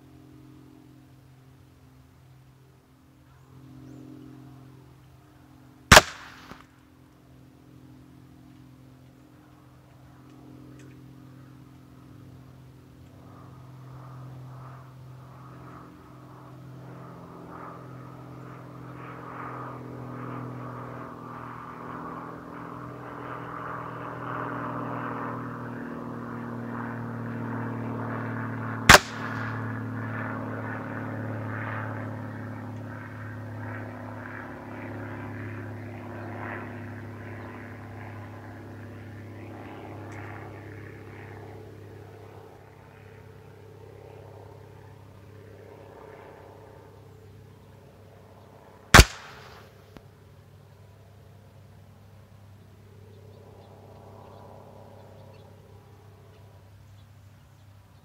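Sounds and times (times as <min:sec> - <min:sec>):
engine drone: 0:00.0 - 0:50.1
air rifle shot: 0:05.9 - 0:06.7, 0:28.9 - 0:29.7, 0:49.0 - 0:49.8.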